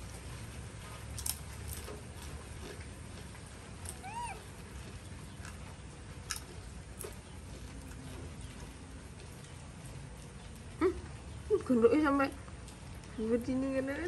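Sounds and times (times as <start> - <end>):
baby monkey squeaky call: 4.0 - 4.4.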